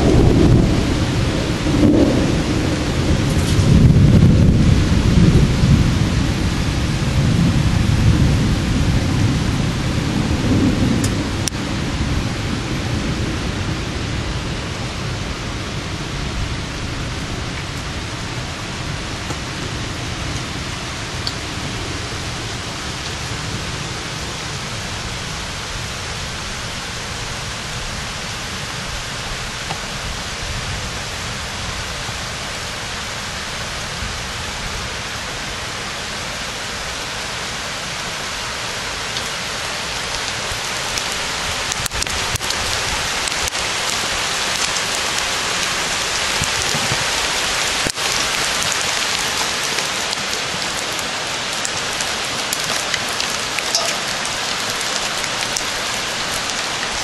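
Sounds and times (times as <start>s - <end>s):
hail pattering on roofs: 39.0s - 57.0s.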